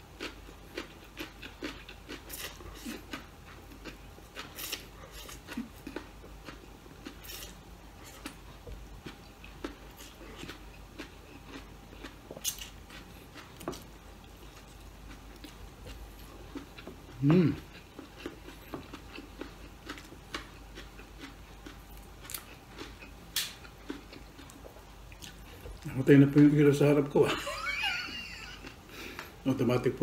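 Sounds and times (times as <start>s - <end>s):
chewing and wet mouth clicks: 9.2s - 13.8s, 17.7s - 25.9s.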